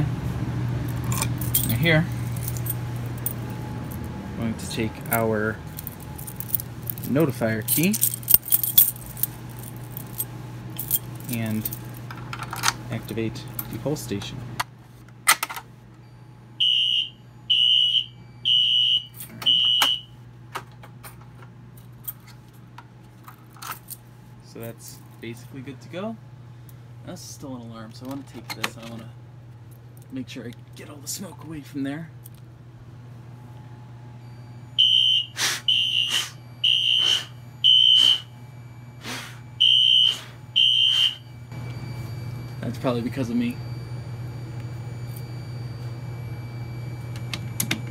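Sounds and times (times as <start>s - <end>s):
fire alarm horn blasts: 16.0s - 20.2s, 34.1s - 47.6s.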